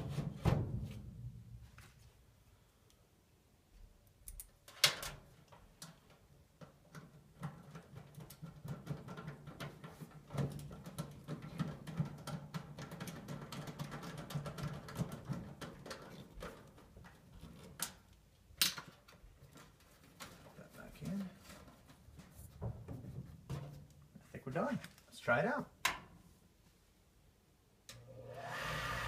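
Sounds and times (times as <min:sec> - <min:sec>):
hands handling wiring and connectors: 0:04.1 - 0:24.1.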